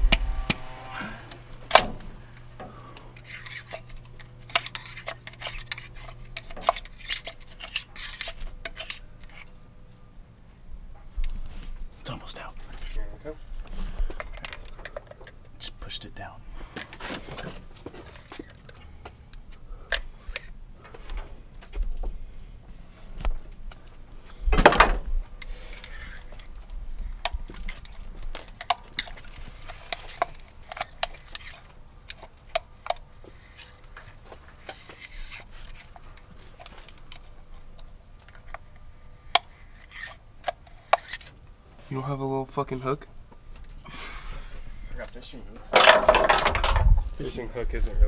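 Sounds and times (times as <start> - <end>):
screwdriver clicking and scraping metal: 3.2 - 9.6, 25.4 - 41.4.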